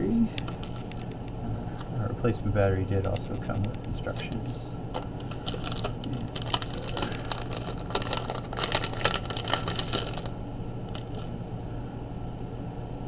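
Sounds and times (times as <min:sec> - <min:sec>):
steady low hum: 0:00.0 - 0:13.0
plastic wrapping crinkling: 0:00.5 - 0:01.1, 0:04.9 - 0:11.3.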